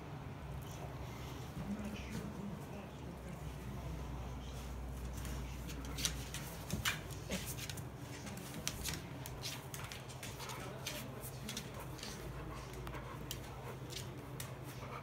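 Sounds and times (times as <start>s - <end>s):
dog claws clicking on wood floor: 5.7s - 15.0s.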